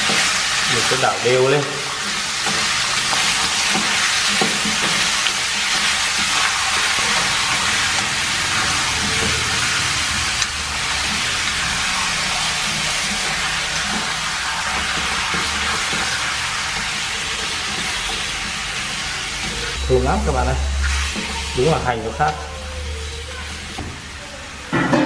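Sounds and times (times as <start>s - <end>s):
meat sizzling in a pan: 0.0s - 25.0s.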